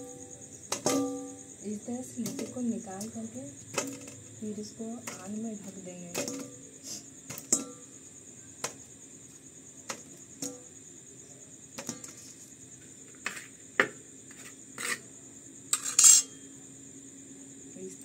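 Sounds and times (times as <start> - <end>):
crickets chirping: 0.0 - 18.0
dough balls knocking in steel bowl: 0.7 - 1.4, 2.1 - 4.3, 5.0 - 7.9, 8.6 - 8.9, 9.8 - 10.7, 11.8 - 12.2.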